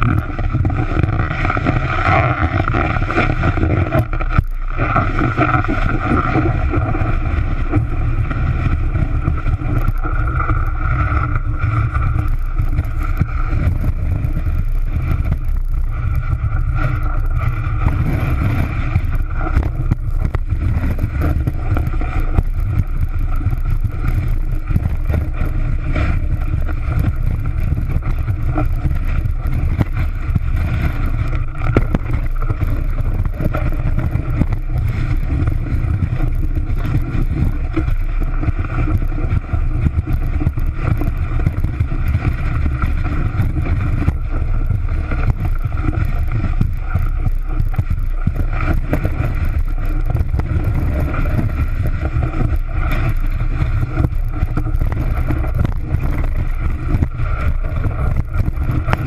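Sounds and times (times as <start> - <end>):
snowboard scraping on snow: 0.0 - 4.0
wind on microphone: 0.0 - 59.0.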